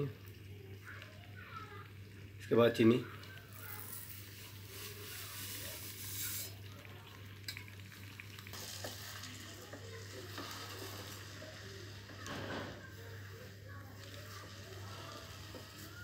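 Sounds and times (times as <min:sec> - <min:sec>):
sugar pouring with a hiss: 0:02.4 - 0:16.0
spatula stirring thick mixture: 0:08.6 - 0:16.0.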